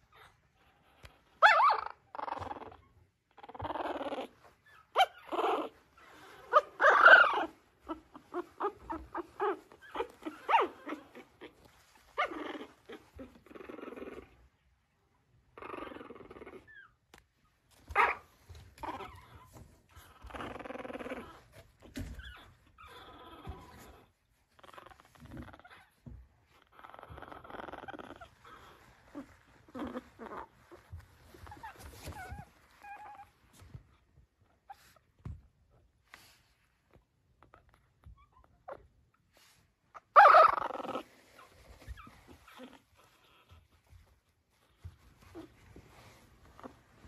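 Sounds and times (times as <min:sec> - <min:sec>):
puppy crying: 0:06.5 - 0:14.4.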